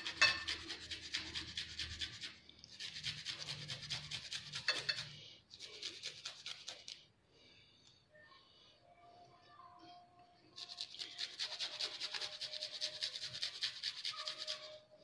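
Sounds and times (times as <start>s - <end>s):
garlic rasping on metal grater: 0.0s - 5.1s.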